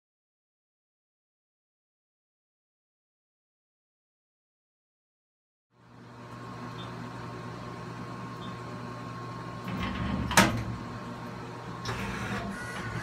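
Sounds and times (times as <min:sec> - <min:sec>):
machine steady hum: 0:05.7 - 0:13.0
loud mechanical clunk: 0:09.6 - 0:10.9, 0:11.8 - 0:13.0
tool changer motor drive: 0:11.8 - 0:13.0.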